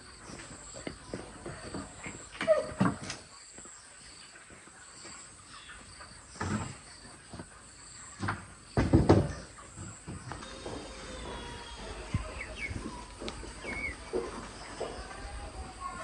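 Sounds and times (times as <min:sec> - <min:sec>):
wooden boards knocking and clattering: 0:08.2 - 0:09.5.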